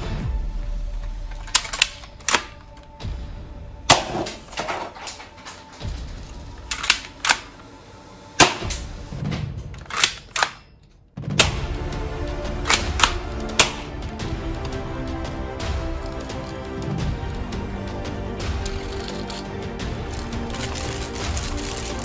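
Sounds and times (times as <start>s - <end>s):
background music: 0.0s - 22.0s
toy guns snapping: 1.4s - 2.9s, 6.6s - 7.6s, 9.8s - 10.8s, 12.6s - 13.9s, 18.6s - 19.5s, 20.1s - 22.0s.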